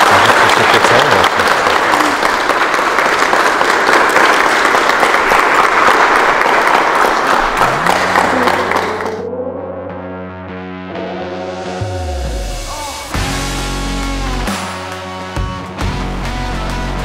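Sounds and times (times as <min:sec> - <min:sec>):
crowd applauding: 0:00.0 - 0:09.3.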